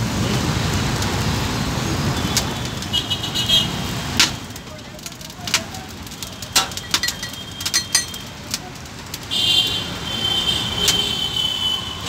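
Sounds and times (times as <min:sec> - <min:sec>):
street noise: 0:00.0 - 0:12.0
metal spatula clinking on pans: 0:06.5 - 0:08.3.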